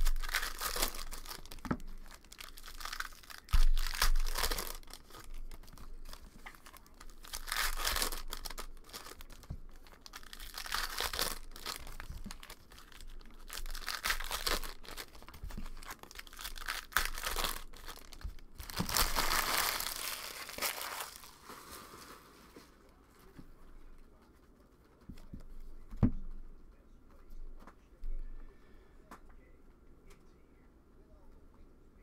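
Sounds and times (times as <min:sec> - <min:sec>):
foil wrappers tearing and crinkling: 0:00.0 - 0:22.4.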